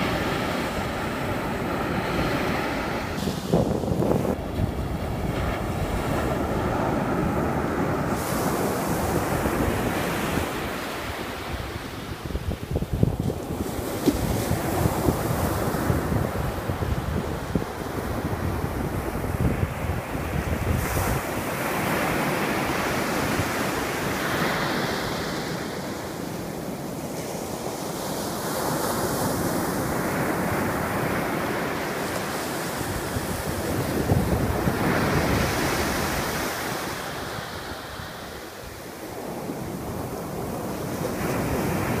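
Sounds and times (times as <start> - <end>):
surf breaking on beach: 0.0 - 42.0
wind rumble on microphone: 0.0 - 42.0.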